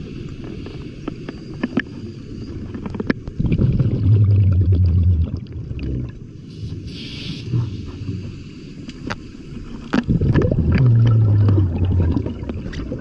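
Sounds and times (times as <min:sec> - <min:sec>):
diver's breath bubbling: 0:03.4 - 0:08.3, 0:10.0 - 0:13.0.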